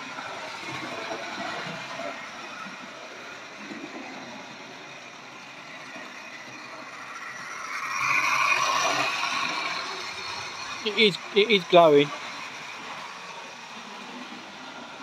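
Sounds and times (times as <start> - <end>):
model train motor whirring: 0.0 - 15.0
wheels clattering over rails: 0.0 - 15.0.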